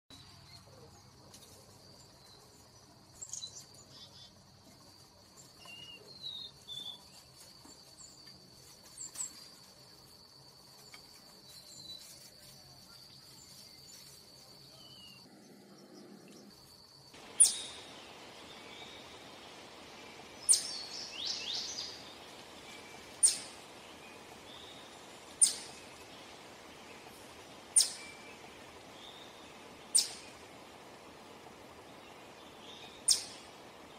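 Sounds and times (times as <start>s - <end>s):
faint chirps: 0.1s - 33.9s
faint high-pitched whine: 0.1s - 33.9s
chipmunk chip call: 17.2s - 18.0s, 23.2s - 23.6s, 25.4s - 25.7s, 29.9s - 30.2s.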